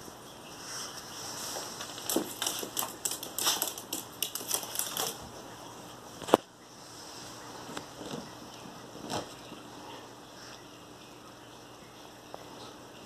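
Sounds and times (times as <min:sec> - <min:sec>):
dog claws clicking on tiles: 0:01.8 - 0:05.2.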